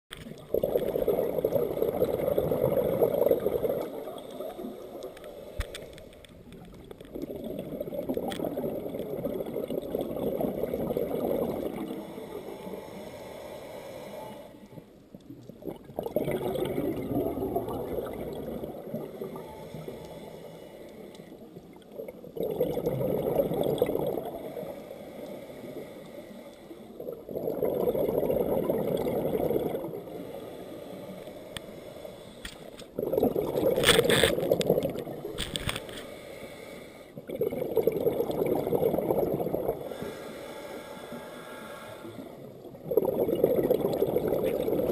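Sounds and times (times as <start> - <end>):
underwater exhalation bubbles: 0.2 - 5.2, 6.8 - 12.2, 15.3 - 19.8, 21.6 - 24.7, 27.0 - 30.2, 32.9 - 35.8, 37.2 - 40.1, 42.1 - 44.9.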